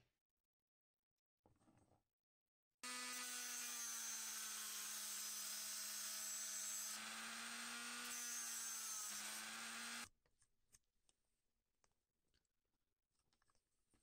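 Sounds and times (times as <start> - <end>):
rotary tool grinding metal: 2.8 - 10.1.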